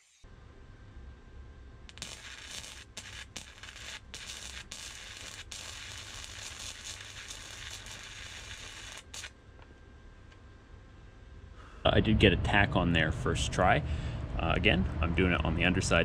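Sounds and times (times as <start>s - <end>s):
welding arc crackling and hissing: 1.9s - 9.4s.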